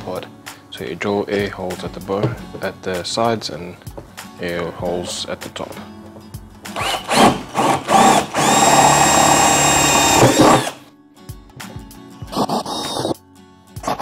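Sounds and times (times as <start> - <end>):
cordless drill boring plastic: 6.8 - 10.8.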